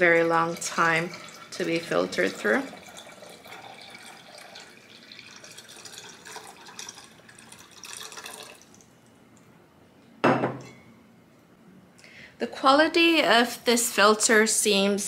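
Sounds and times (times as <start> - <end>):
water pouring into a pitcher: 0.0 - 8.9.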